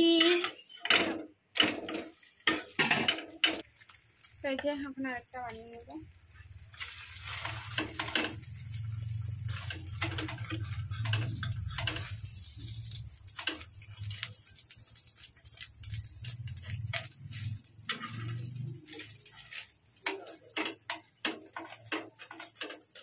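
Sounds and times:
spatula scraping and tapping pan: 0.2s - 4.7s, 5.5s - 23.0s
bread sizzling in oil: 1.6s - 23.0s.

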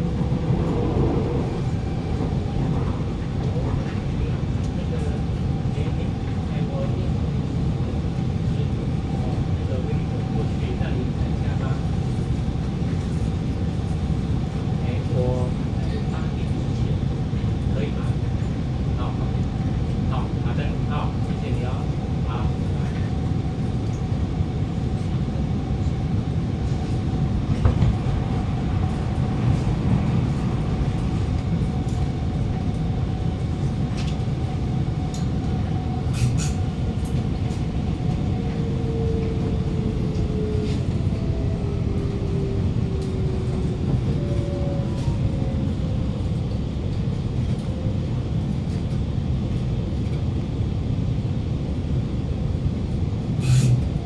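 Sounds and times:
faint train whine: 0.0s - 54.0s
metro train rumble: 0.0s - 54.0s.

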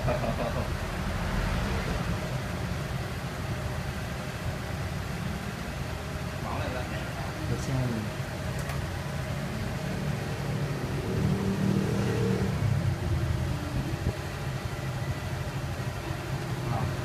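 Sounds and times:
scooter engine revving: 9.9s - 14.0s.

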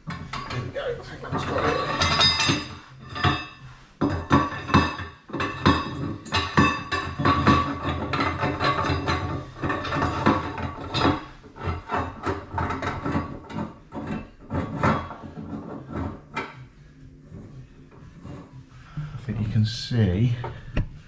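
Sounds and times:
metal knocks and clanks: 0.0s - 18.6s.

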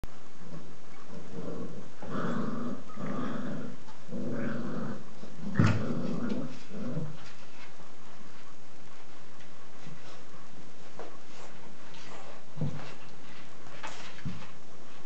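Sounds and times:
puppies growling: 0.9s - 7.8s.

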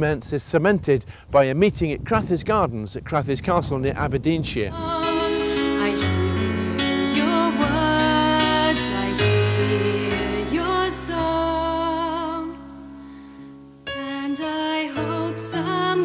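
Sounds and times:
person singing with vibrato: 4.7s - 13.3s, 13.9s - 16.0s
instrumental accompaniment: 4.8s - 16.0s.

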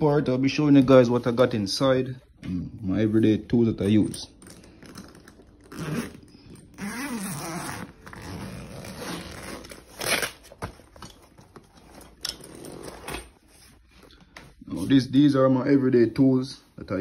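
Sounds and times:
zipper being pulled: 4.9s - 10.4s.

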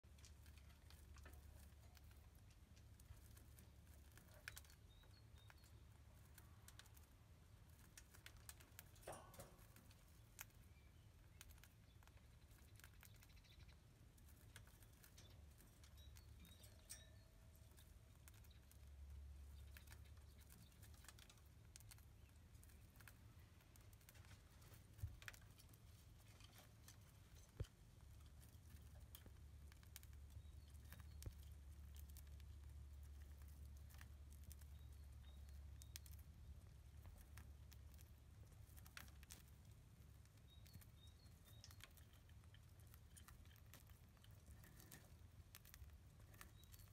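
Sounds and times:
bird clicking on wire cage: 0.1s - 36.2s.

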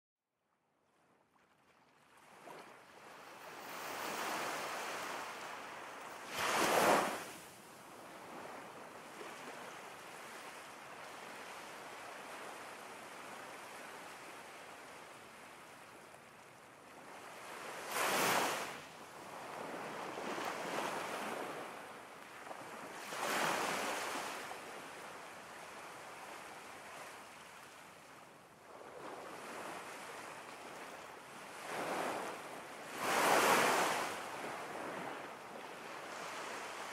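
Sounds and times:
ocean waves breaking: 2.2s - 7.4s, 17.1s - 24.4s, 31.6s - 36.9s
waves crashing: 3.6s - 7.4s, 17.8s - 18.8s, 32.9s - 34.3s.

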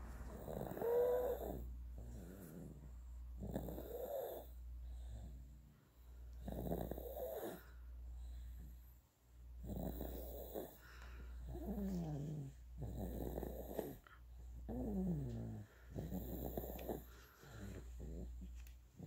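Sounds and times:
baby snoring: 0.0s - 2.8s, 3.4s - 5.4s, 6.4s - 7.8s, 9.6s - 10.8s, 11.4s - 18.4s.

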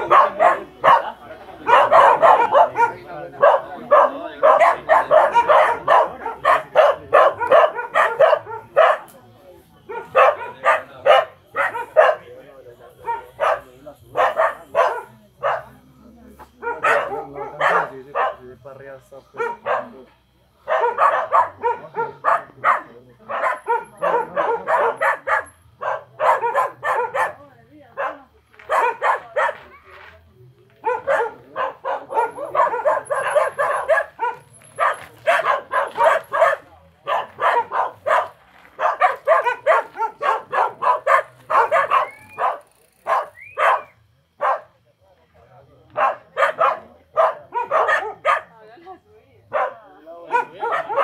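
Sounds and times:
dog barking: 0.0s - 9.1s, 9.9s - 12.3s, 13.0s - 15.8s, 16.5s - 18.5s, 19.3s - 29.8s, 30.8s - 44.8s, 45.9s - 48.6s, 49.5s - 51.0s.

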